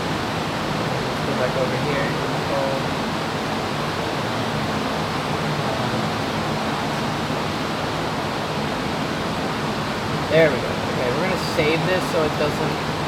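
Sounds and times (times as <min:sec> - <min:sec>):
cooling fans rushing: 0:00.0 - 0:13.0
low steady hum: 0:00.0 - 0:13.0.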